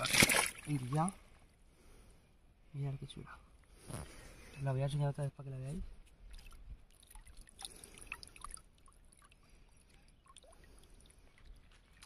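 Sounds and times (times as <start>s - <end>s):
small water splashes and drips: 0.0s - 1.2s, 6.0s - 12.0s.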